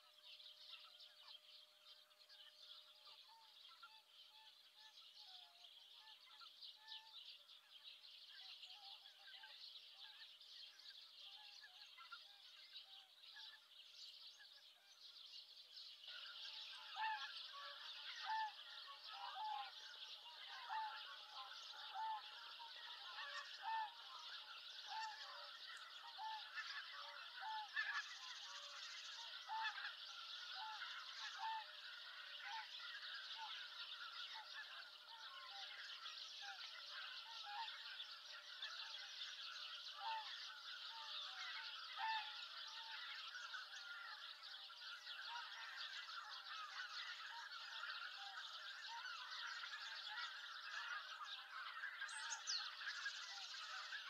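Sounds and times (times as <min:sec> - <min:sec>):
geese honking: 0:16.1 - 0:54.0.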